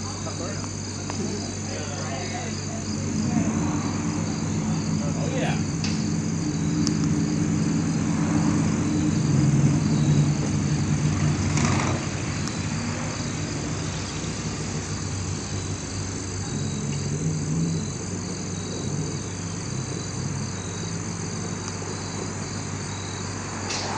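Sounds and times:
truck engine humming: 0.0 - 23.9.

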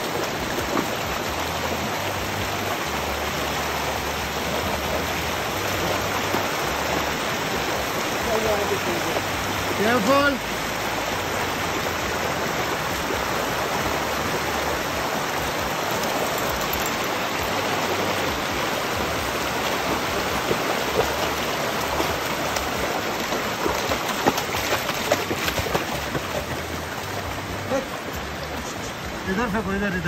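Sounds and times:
stream rushing over rocks: 0.0 - 30.0
dog splashing through water: 12.1 - 28.8.

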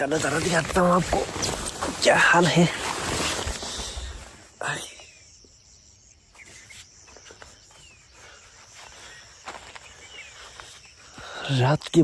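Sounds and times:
handling rustle: 0.0 - 4.5
faint bird chirps: 3.6 - 12.0.

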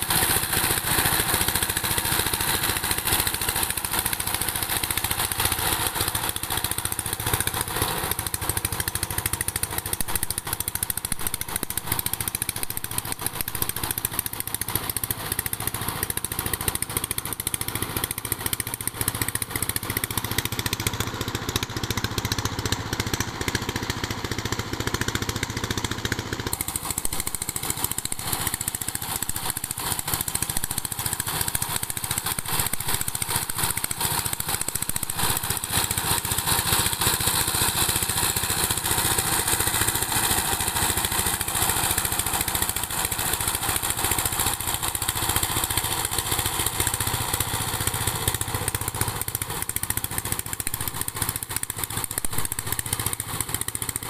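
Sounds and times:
diesel engine running: 12.7 - 54.0.

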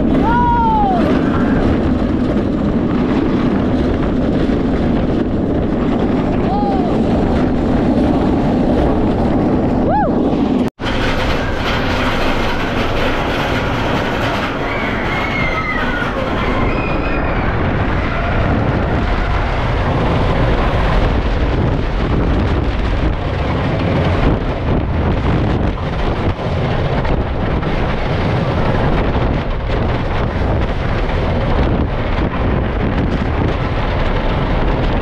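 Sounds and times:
roller coaster rumbling on wooden track: 0.0 - 35.0
high squeals: 14.5 - 18.5.

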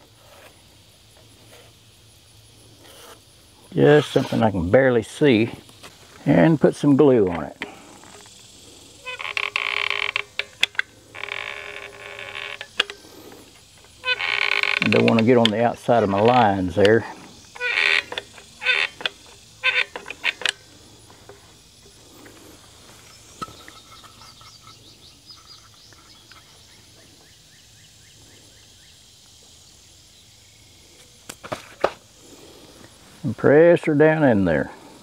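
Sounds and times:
faint bird trill: 23.1 - 29.0.

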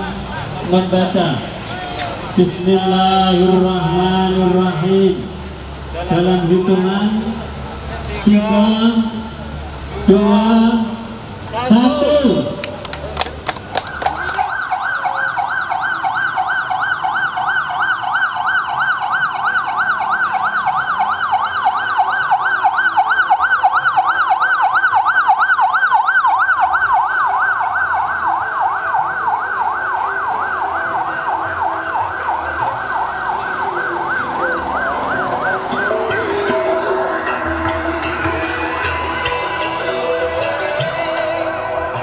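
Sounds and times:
police siren yelping: 13.7 - 42.0.

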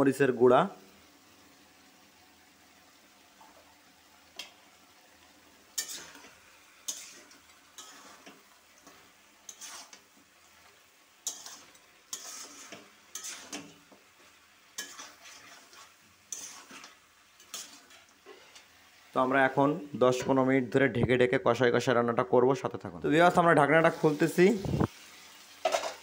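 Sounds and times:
spatula scraping a metal wok: 5.7 - 18.7, 25.6 - 26.0.

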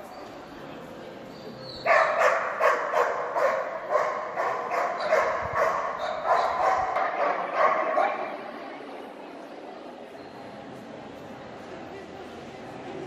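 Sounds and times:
dog barking rapidly: 1.9 - 8.2.

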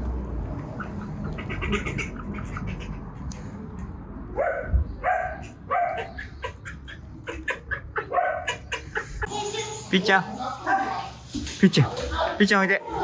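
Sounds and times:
dog barking: 4.4 - 6.3, 8.0 - 8.6.

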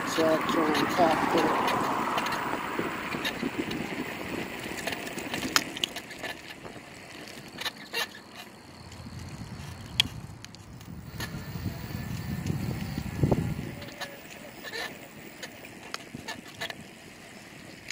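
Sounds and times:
bicycle clicks and rattles: 0.0 - 17.9
bicycle tyres on pavement: 0.0 - 17.9
low rumble: 8.7 - 13.8.

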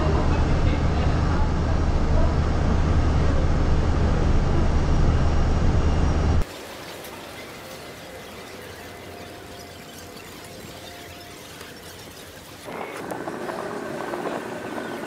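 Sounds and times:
vehicle engine drone: 0.0 - 6.4, 12.6 - 15.0
road noise: 0.0 - 15.0.

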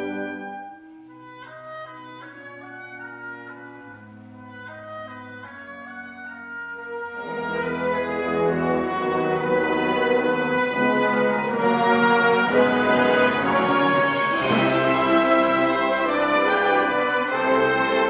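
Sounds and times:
wind band playing: 0.0 - 18.0
cymbal crash: 13.8 - 15.8.

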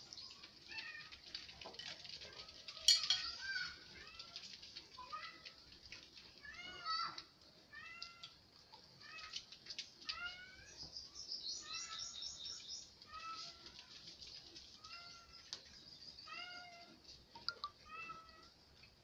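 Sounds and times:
cat meowing: 16.3 - 17.0, 17.8 - 18.5.

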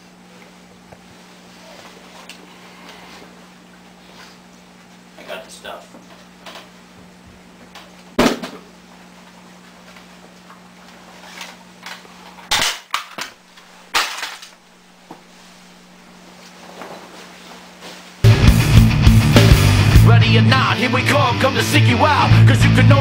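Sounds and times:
loud music: 18.2 - 23.0.

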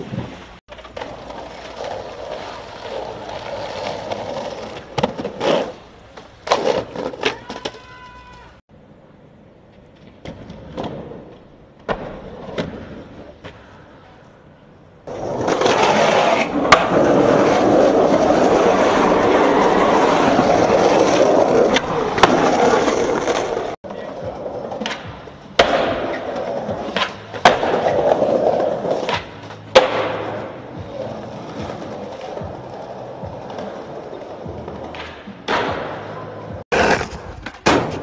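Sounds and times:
skateboard wheels rolling on concrete: 0.0 - 38.0
skateboard clacking on ground: 15.1 - 38.0.

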